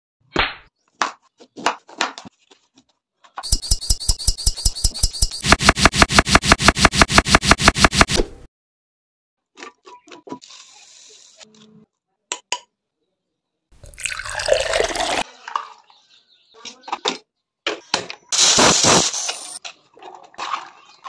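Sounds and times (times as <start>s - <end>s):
water pouring into a pot: 13.8s - 15.6s.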